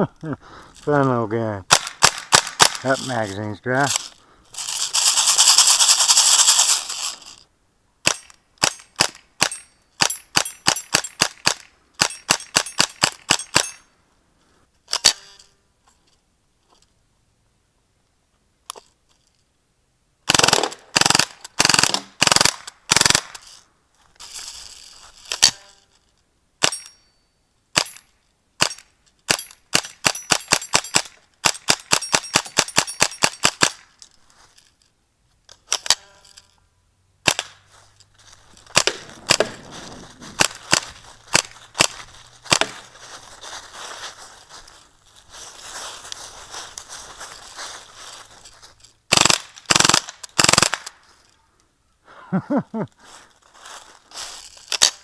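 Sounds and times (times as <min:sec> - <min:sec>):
bb gun firing pops: 0:20.3 - 0:23.3, 0:38.7 - 0:39.7.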